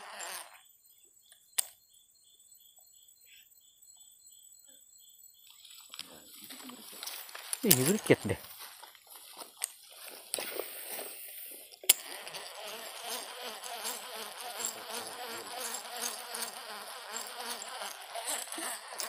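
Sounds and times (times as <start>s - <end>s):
fishing reel whirring: 0.0s - 0.6s, 11.9s - 19.0s
fishing reel click: 11.9s - 19.0s.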